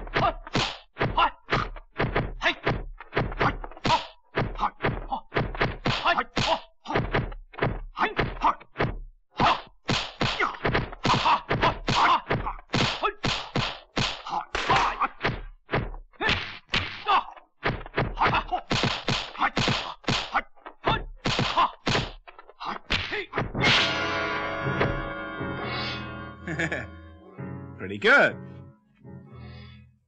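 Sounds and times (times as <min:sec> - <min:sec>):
punch sound effects: 0:00.5 - 0:02.3, 0:04.4 - 0:20.4, 0:21.2 - 0:22.2, 0:22.9 - 0:25.1
music with a crash: 0:23.6 - 0:26.8.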